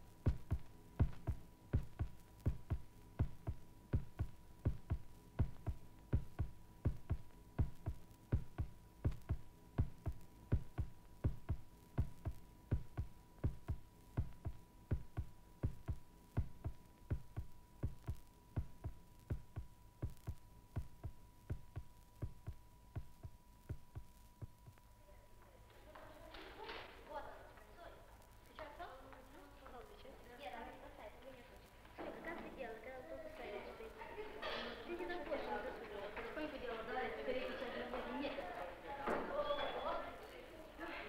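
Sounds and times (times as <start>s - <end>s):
amplified heartbeat: 0.0s - 24.8s.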